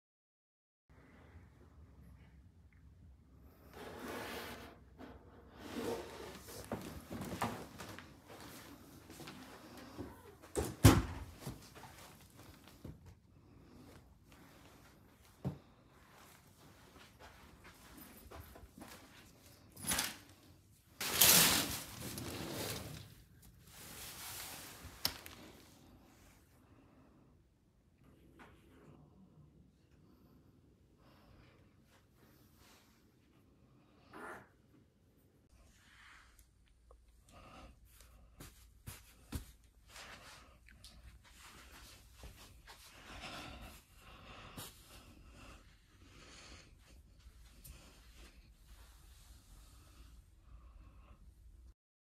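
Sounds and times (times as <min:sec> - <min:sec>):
curtains sliding along track: 0:21.0 - 0:23.1
curtain rustle: 0:21.0 - 0:25.6.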